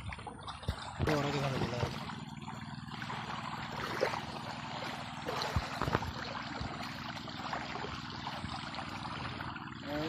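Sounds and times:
short water splashes: 0:00.0 - 0:10.0
steady low hum: 0:00.0 - 0:10.0
water sloshing and lapping: 0:00.0 - 0:10.0.

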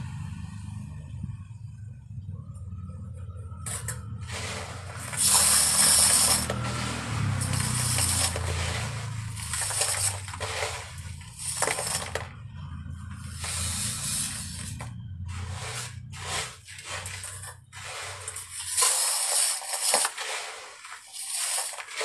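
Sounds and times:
gritty mix pattering on metal: 0:03.6 - 0:12.4, 0:13.2 - 0:22.0.

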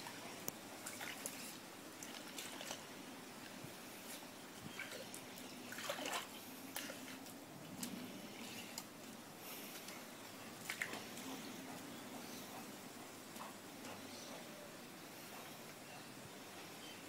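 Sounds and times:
dog splashing in pool water: 0:00.8 - 0:04.1, 0:04.7 - 0:09.1, 0:10.5 - 0:11.3.

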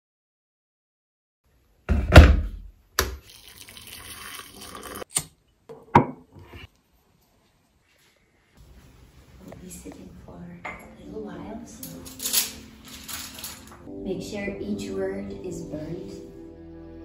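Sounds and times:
water pouring into a mug: 0:03.2 - 0:05.1.

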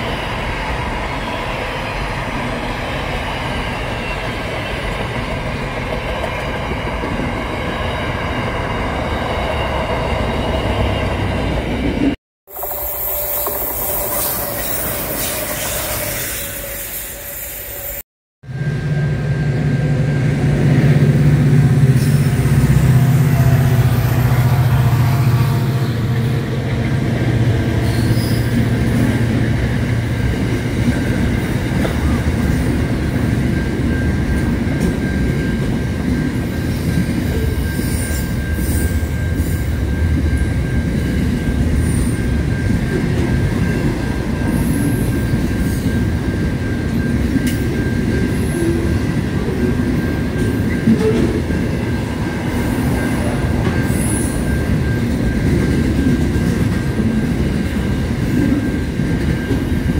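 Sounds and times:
diesel locomotive engine droning: 0:00.0 - 0:59.9
thin wheel squeal: 0:12.5 - 0:18.0
train wheel rumble: 0:18.5 - 0:59.9.

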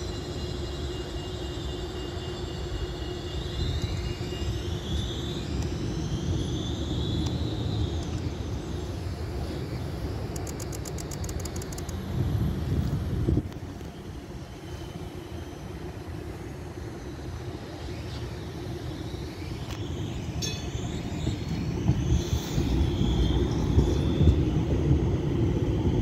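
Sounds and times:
tram rumbling with electric whine: 0:00.0 - 0:26.0
high clicks: 0:10.3 - 0:12.0.

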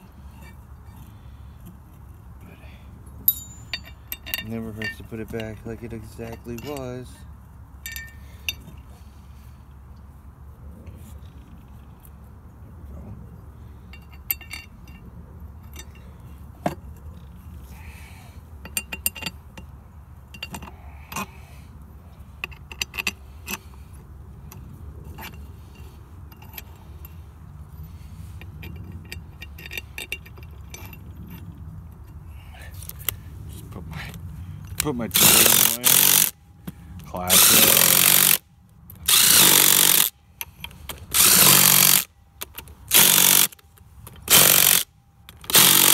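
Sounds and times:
metal parts and tools clinking: 0:03.2 - 0:07.2, 0:07.8 - 0:08.9, 0:13.8 - 0:17.5, 0:18.6 - 0:21.3, 0:22.4 - 0:23.7, 0:24.4 - 0:33.2, 0:34.6 - 0:36.3, 0:37.0 - 0:45.9.

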